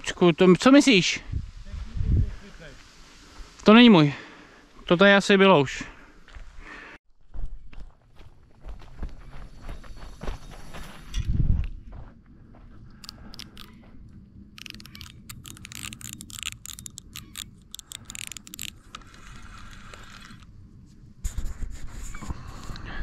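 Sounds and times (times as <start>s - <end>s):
fishing reel ratchet clicking: 14.6s - 20.4s.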